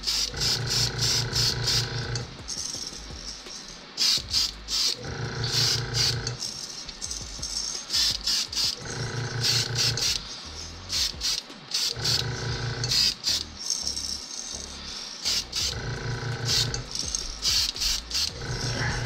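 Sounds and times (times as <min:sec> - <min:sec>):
airbrush spraying hissing bursts: 0:00.0 - 0:19.0.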